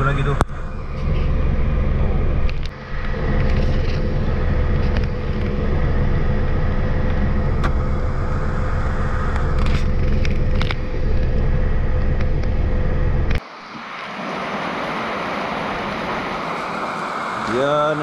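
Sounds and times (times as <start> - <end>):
car engine and tyres rumbling: 0.0 - 18.0
rain: 13.4 - 18.0.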